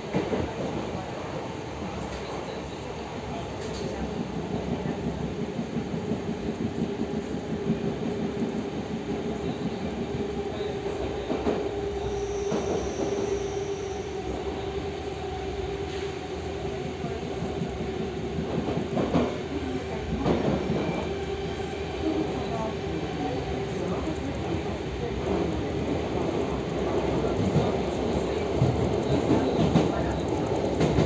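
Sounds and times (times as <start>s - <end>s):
train wheels rumbling on track: 0.0s - 31.0s
faint high wheel squeal: 12.0s - 14.4s.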